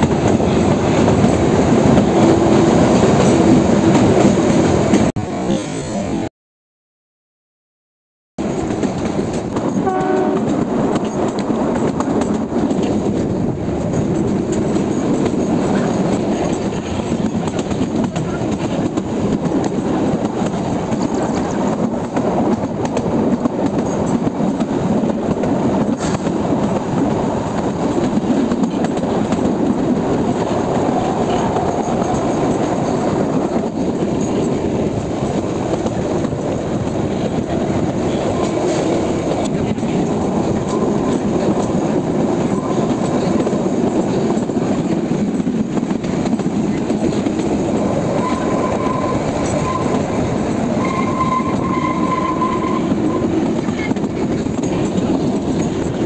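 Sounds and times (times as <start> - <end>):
train wheels rumbling on rails: 0.0 - 6.3, 8.4 - 56.0
train horn toot: 9.7 - 10.6, 48.2 - 50.2, 50.8 - 53.4.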